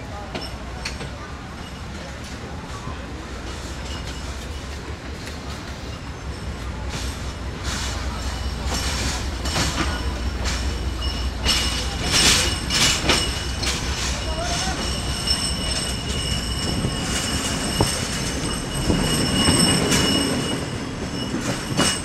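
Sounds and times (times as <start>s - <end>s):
train rumble: 0.0s - 22.0s
wheels clacking over rail joints: 3.4s - 22.0s
high wheel squeal: 8.1s - 22.0s.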